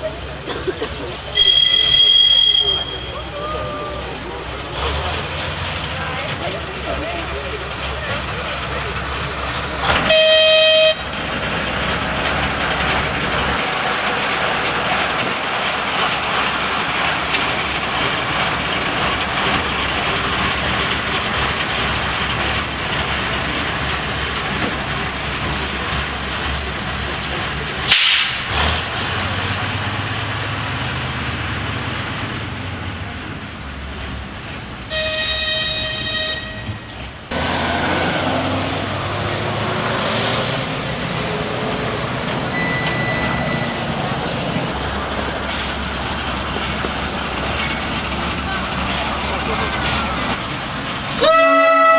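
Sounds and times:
diesel engine running: 0.0s - 51.9s
locomotive horn blasts: 1.4s - 3.2s, 10.0s - 11.1s, 34.9s - 36.8s, 51.1s - 51.9s.

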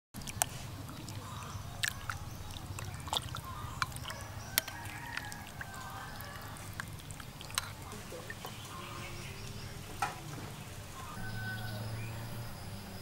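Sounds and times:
broth dripping and splashing: 0.2s - 11.0s
faint bird calls: 0.7s - 10.0s.

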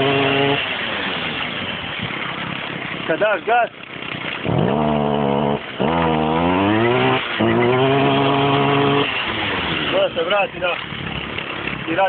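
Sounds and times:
brushcutter engine revving: 0.0s - 12.0s.

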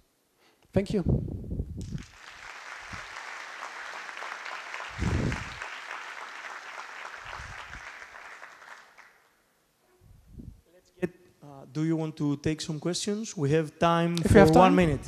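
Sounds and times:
audience applauding: 1.9s - 9.3s.

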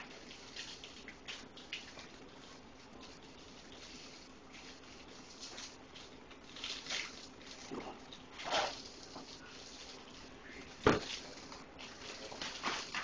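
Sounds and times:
paper bag rustling: 8.3s - 13.0s.

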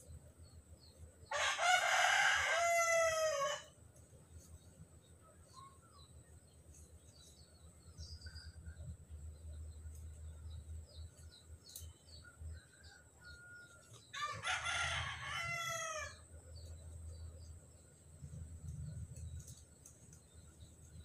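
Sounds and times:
rooster crowing: 1.3s - 3.8s, 12.9s - 16.2s
faint bird chirps: 4.4s - 14.3s.

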